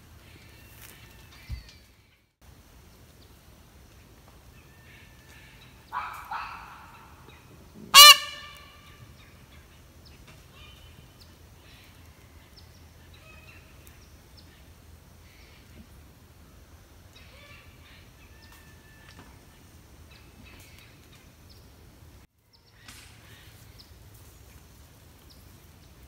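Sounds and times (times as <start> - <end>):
peacock calling: 4.6 - 9.8.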